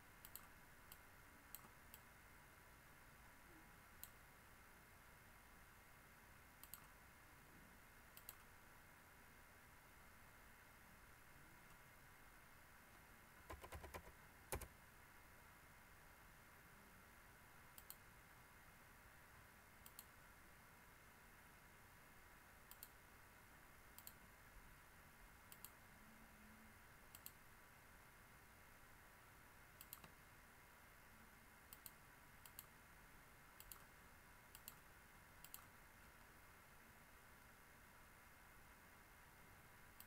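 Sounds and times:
faint steady hiss: 0:00.0 - 0:40.0
computer mouse clicks: 0:00.2 - 0:02.1, 0:04.0 - 0:04.2, 0:06.6 - 0:07.0, 0:08.1 - 0:08.5, 0:13.4 - 0:14.7, 0:17.7 - 0:18.0, 0:19.8 - 0:20.2, 0:22.7 - 0:23.0, 0:24.0 - 0:24.2, 0:25.5 - 0:25.8, 0:27.1 - 0:27.4, 0:29.8 - 0:30.2, 0:31.7 - 0:32.7, 0:33.6 - 0:36.3.

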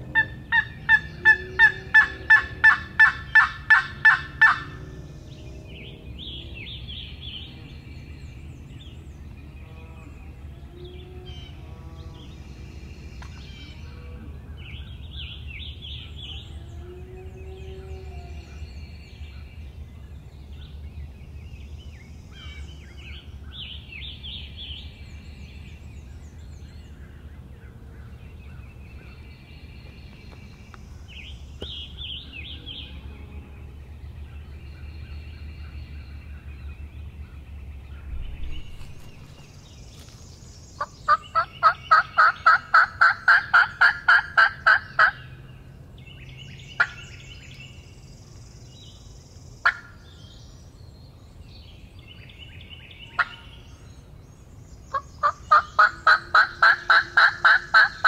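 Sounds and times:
low steady hum: 0:00.0 - 0:58.0
songbirds chirping: 0:00.0 - 0:58.0
turkey call yelps: 0:00.2 - 0:04.7, 0:55.2 - 0:58.0.

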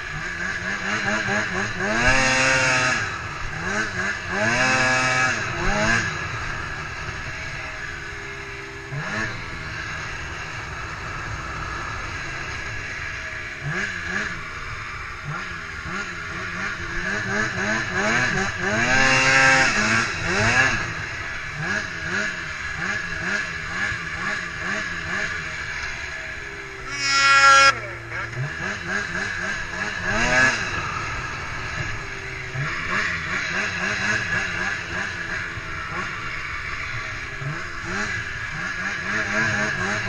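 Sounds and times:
snowmobile engine revving: 0:00.0 - 0:40.0.

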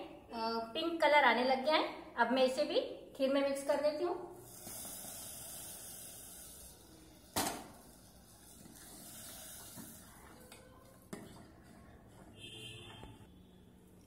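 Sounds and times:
spatula stirring a pot: 0:07.9 - 0:13.4.

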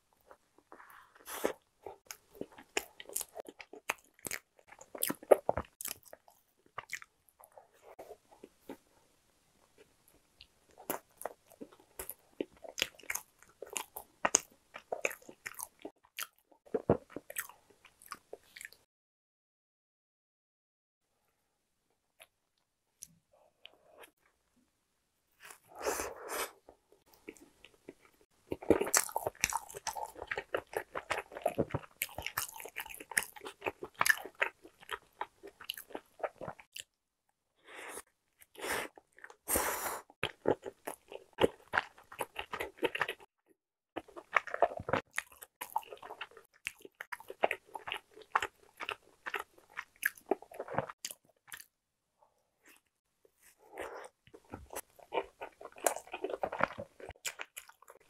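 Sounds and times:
biting and chewing bread: 0:00.2 - 0:08.9, 0:10.4 - 0:18.8, 0:26.7 - 0:36.9, 0:40.2 - 0:43.3, 0:44.0 - 0:51.8, 0:52.7 - 0:58.0.

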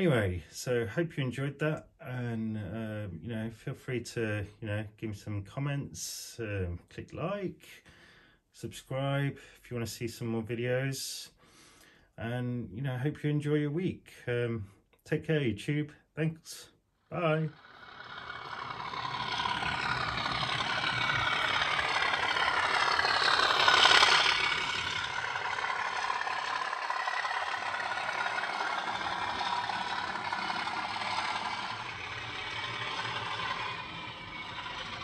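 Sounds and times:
model train motor whirring: 0:17.2 - 0:35.0
wheels rattling over rails: 0:17.5 - 0:35.0.

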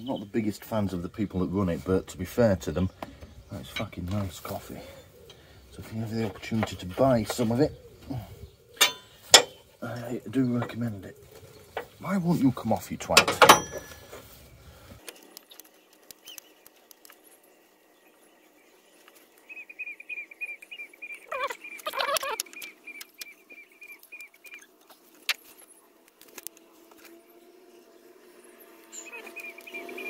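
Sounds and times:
high squeaky ticks: 0:20.6 - 0:25.4.

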